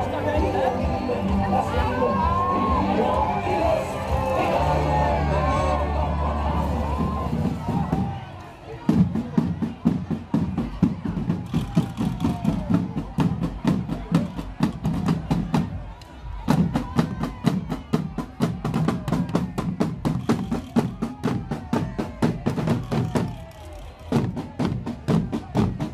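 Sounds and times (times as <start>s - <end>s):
marching drums beating: 6.2s - 25.9s.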